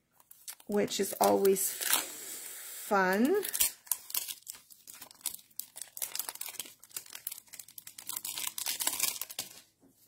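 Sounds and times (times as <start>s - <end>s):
plastic packaging crinkling: 3.1s - 9.8s.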